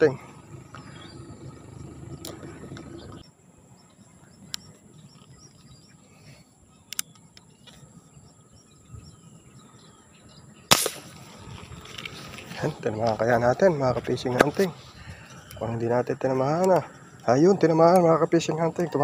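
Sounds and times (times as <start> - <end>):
faint bird chirps: 0.0 - 19.0
gun handling clicks: 6.9 - 7.8
rifle gunshot: 10.7 - 11.3.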